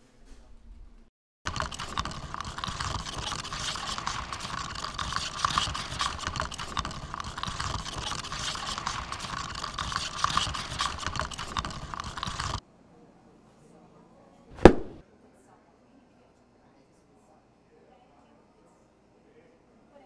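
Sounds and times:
ice rattling in plastic cup: 0:01.5 - 0:12.6
straw scraping through lid: 0:01.5 - 0:12.6.

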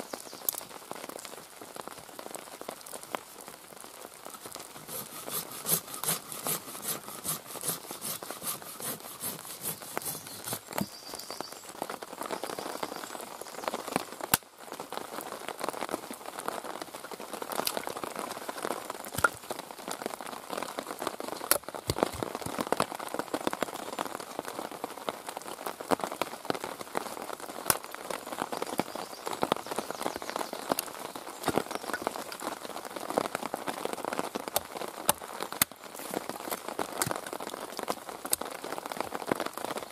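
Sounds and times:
steady rain: 0:00.0 - 0:39.9
saw cutting through log: 0:04.3 - 0:10.8.

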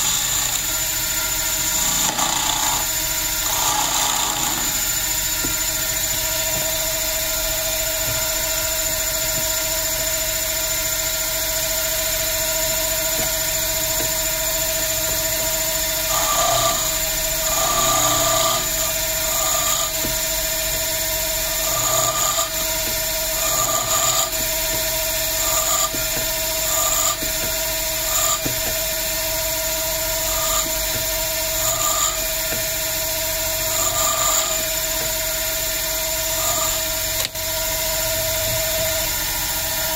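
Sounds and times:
lathe motor whining: 0:00.0 - 0:39.9
cutter scraping spinning tip: 0:12.5 - 0:28.7, 0:29.9 - 0:35.4, 0:36.2 - 0:36.8.

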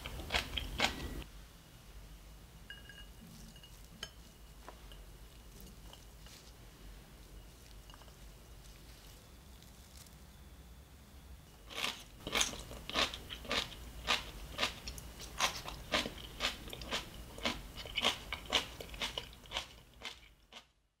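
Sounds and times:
person chewing crunchy food: 0:00.0 - 0:01.3, 0:11.6 - 0:20.7.

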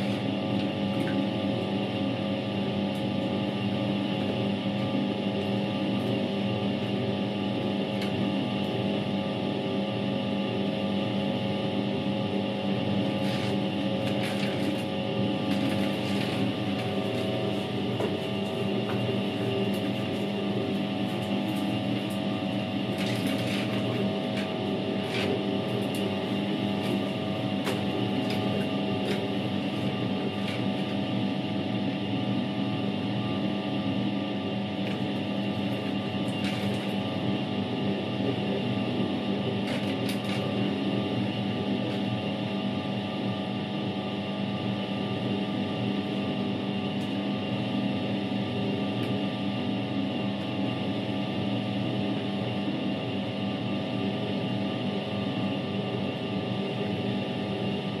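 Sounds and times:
water and laundry churning: 0:00.0 - 0:01.9, 0:12.9 - 0:31.1
washing machine motor hum: 0:00.0 - 0:58.0.

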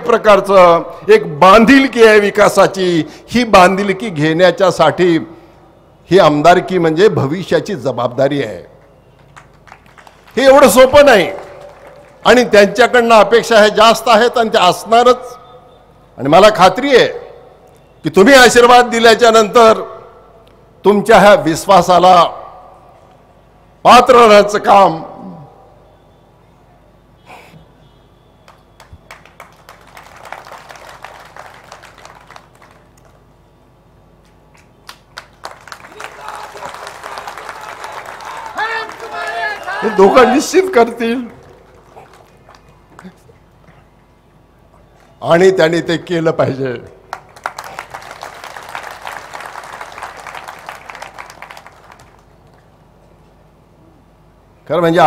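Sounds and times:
crowd applauding: 0:08.8 - 0:12.5, 0:28.4 - 0:33.2, 0:34.5 - 0:43.3, 0:47.1 - 0:52.7.

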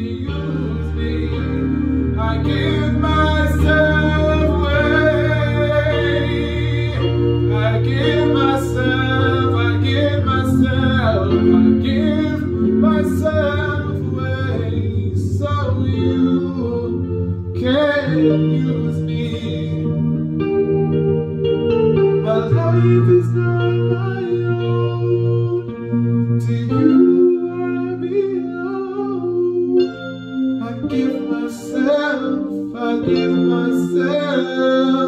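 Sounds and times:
man singing: 0:00.0 - 0:20.2, 0:22.2 - 0:35.0
electronic keyboard chords: 0:00.0 - 0:35.0.

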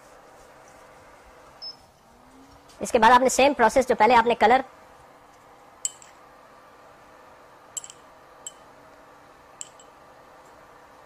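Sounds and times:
faint steady hum: 0:00.0 - 0:11.0
metal spoon clinking ceramic bowl: 0:07.8 - 0:08.6, 0:09.6 - 0:10.0.

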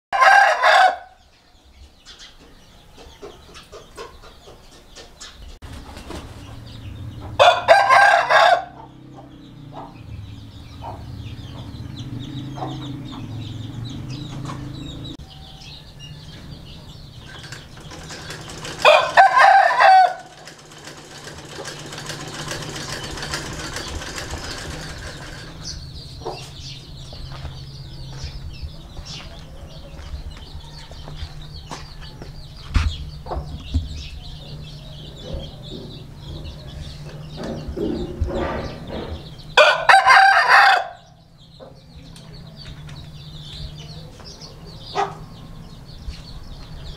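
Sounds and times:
rooster crowing: 0:00.1 - 0:01.2, 0:07.3 - 0:08.9, 0:18.8 - 0:20.4, 0:39.6 - 0:41.1.

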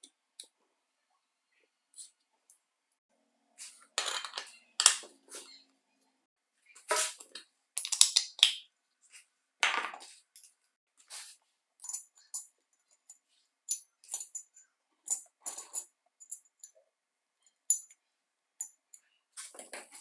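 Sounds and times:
metallic clinks and clatters: 0:11.8 - 0:16.8.

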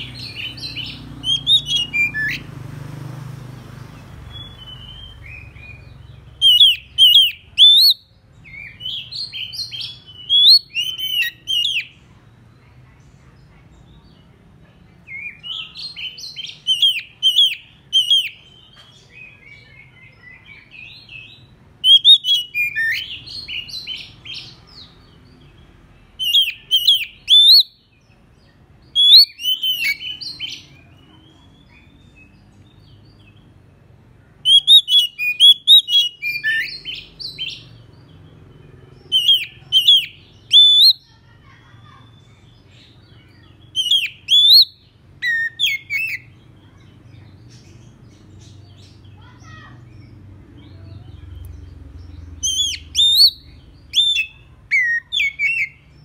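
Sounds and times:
bird singing whistled phrases: 0:00.0 - 0:02.4, 0:04.3 - 0:11.9, 0:15.1 - 0:18.5, 0:19.2 - 0:24.8, 0:26.2 - 0:27.8, 0:29.0 - 0:30.8, 0:34.4 - 0:37.8, 0:39.1 - 0:41.1, 0:43.7 - 0:46.3, 0:52.4 - 0:55.9.

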